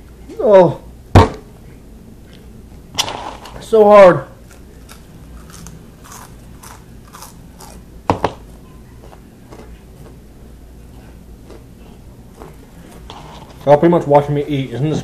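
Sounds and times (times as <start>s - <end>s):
chewing crunchy snacks: 4.4s - 7.8s, 9.0s - 10.2s.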